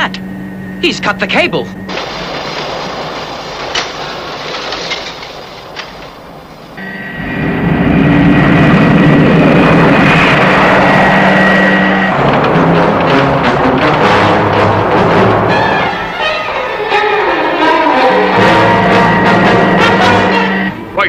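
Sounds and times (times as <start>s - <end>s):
jet engines whining: 0.0s - 21.0s.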